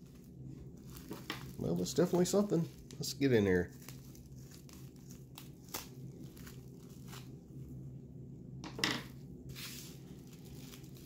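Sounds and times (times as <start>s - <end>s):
plastic crinkling: 0.0s - 7.4s, 9.5s - 11.0s.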